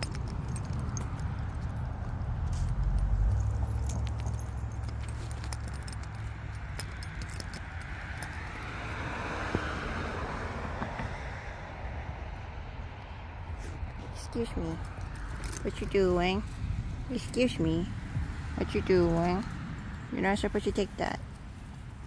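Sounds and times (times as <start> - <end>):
dog harness jingling: 0.0 - 8.9, 14.3 - 16.6
car passing on road: 0.0 - 22.0
wind rumble on microphone: 5.7 - 20.2.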